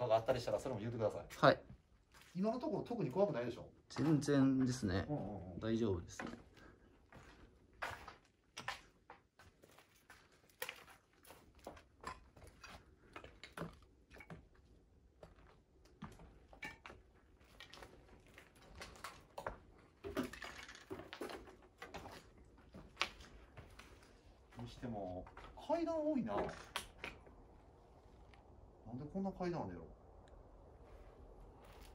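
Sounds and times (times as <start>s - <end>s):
footsteps crunching on debris: 1.9s - 2.5s, 6.1s - 25.6s, 31.5s - 31.9s.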